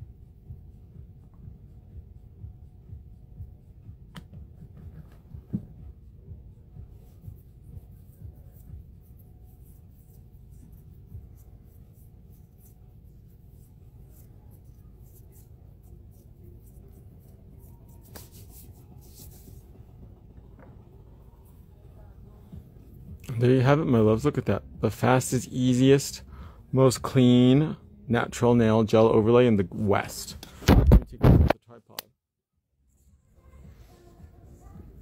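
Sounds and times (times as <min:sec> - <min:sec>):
hands rubbing and tapping: 0:14.1 - 0:19.7.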